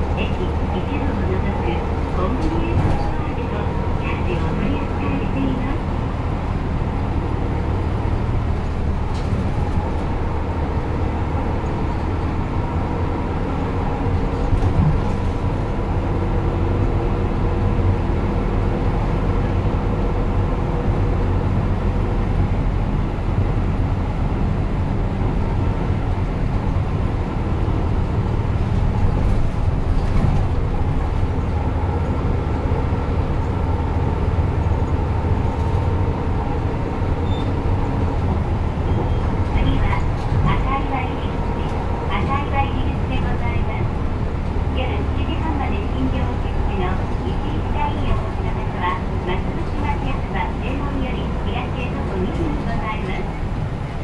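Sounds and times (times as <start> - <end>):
bus engine drone: 0.0 - 54.0.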